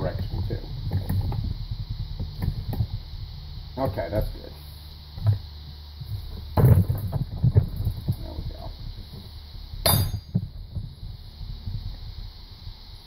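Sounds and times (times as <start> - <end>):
low steady hum: 0.0 - 13.0
light knocks on steel parts: 9.8 - 10.4
sharp metallic clink with ringing: 9.8 - 10.4.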